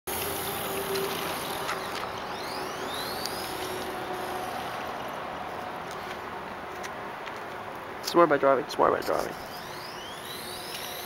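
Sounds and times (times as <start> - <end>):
electric motor whining: 9.5 - 11.0.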